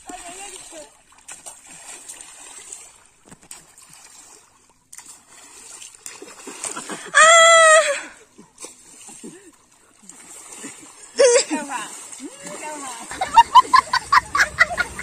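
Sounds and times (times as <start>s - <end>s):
water splashing: 0.0s - 15.0s
high-pitched shout: 7.2s - 8.1s.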